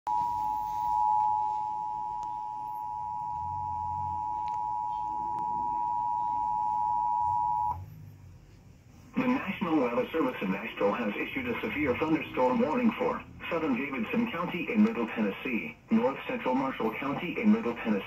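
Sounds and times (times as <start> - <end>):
two-tone alarm from television: 0.1 - 7.8.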